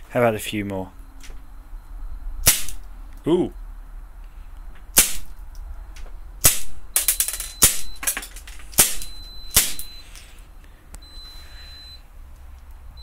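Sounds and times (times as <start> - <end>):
pistol shots: 2.4 - 2.8, 5.0 - 5.3, 6.4 - 6.8
faint high beep: 11.0 - 12.1.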